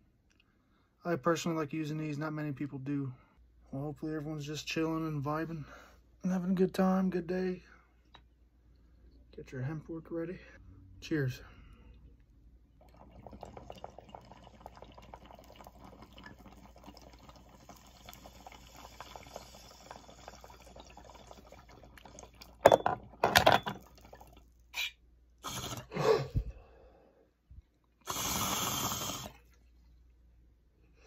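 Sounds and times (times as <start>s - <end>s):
water bubbling in a bong: 12.7s - 23.2s, 23.8s - 24.5s
person exhaling: 25.5s - 27.2s.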